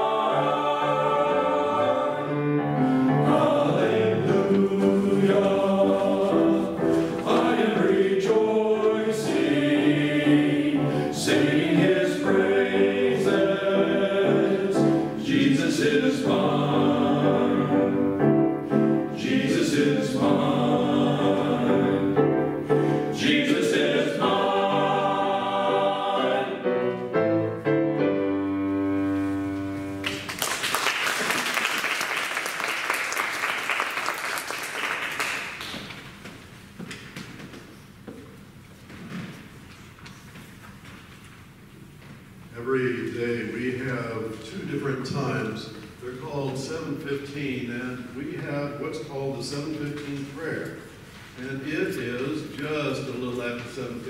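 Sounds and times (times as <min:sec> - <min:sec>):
men's choir singing: 0:00.0 - 0:27.1
piano accompaniment: 0:00.0 - 0:30.8
audience applause: 0:30.0 - 0:35.9.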